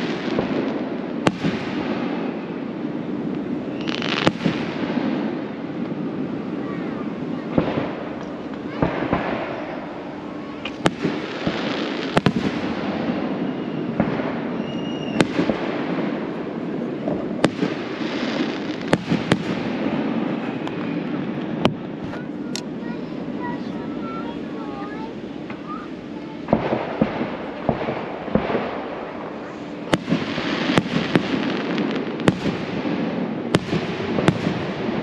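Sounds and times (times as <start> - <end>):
fireworks bangs: 0.0 - 35.0
fireworks crackling: 0.0 - 35.0
fireworks whistle: 3.6 - 4.5, 10.4 - 15.6.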